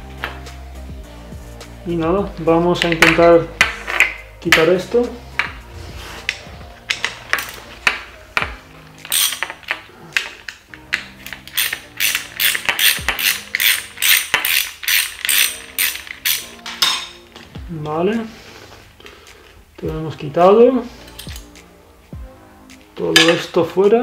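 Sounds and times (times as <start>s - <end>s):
screwdriver ratcheting clicks: 9.0s - 17.0s.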